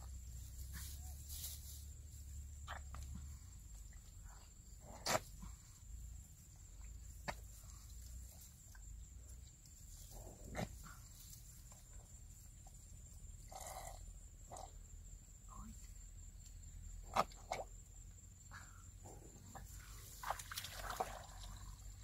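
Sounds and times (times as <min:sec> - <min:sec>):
faint high-pitched hum: 0:10.8 - 0:17.0
hands squelching in wet mud: 0:19.9 - 0:21.8.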